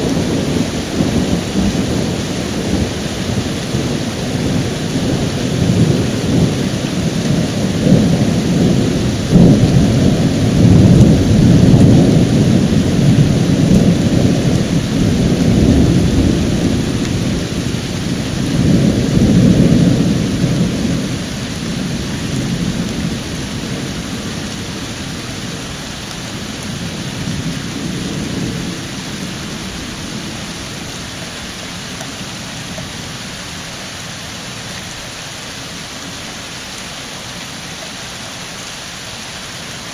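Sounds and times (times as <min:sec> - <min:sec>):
rolling thunder: 0:00.0 - 0:31.0
steady rain: 0:00.0 - 0:39.9.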